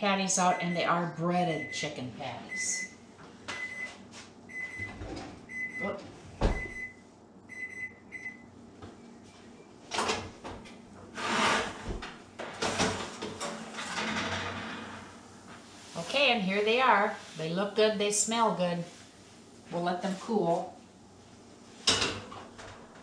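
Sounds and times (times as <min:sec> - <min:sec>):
oven timer beeping: 0:00.5 - 0:05.9, 0:06.5 - 0:08.5
metal baking sheet sliding: 0:11.2 - 0:12.0, 0:12.6 - 0:16.0
oven door opening: 0:11.2 - 0:15.2.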